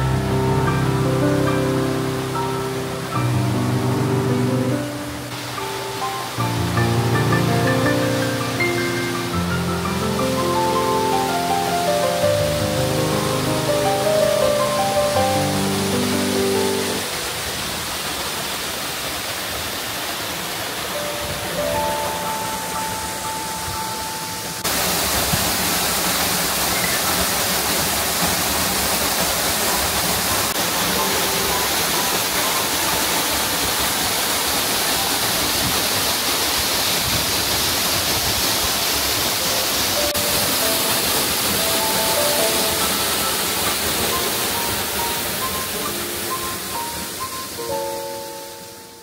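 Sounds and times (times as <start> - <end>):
soft background music: 0.0 - 17.5, 20.9 - 24.7, 30.6 - 33.8, 39.6 - 49.0
waterfall rushing: 0.0 - 49.0.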